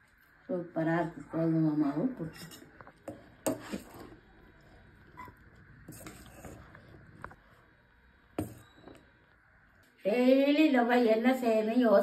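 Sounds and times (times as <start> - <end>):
spoon scraping steel bowl: 2.0 - 4.2, 5.0 - 7.2.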